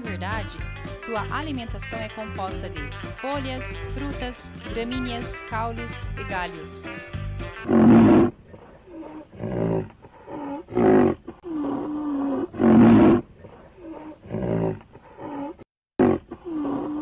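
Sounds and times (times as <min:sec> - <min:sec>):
large animal calling: 0:07.6 - 0:13.2.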